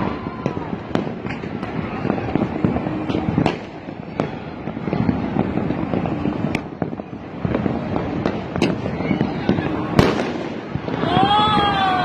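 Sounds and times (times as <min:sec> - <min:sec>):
distant fireworks popping: 0:00.0 - 0:11.9
sharp firecracker cracks: 0:08.2 - 0:11.7.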